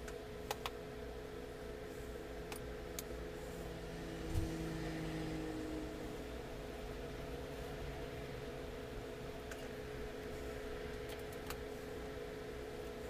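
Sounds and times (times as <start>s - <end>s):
steady machine hum: 0.0s - 13.0s.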